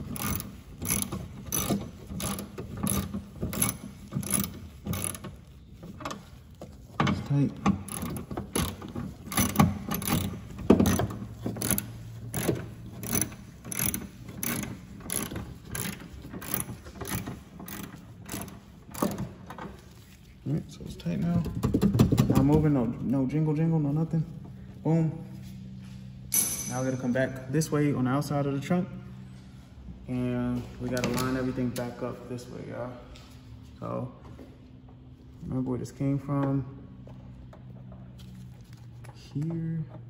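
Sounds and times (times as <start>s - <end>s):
socket ratchet clicking: 0.1s - 5.3s, 7.9s - 19.2s.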